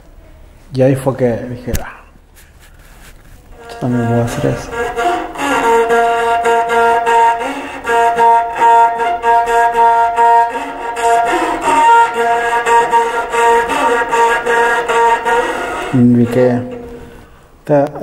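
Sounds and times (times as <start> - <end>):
bowed one-string fiddle: 3.5 - 17.6.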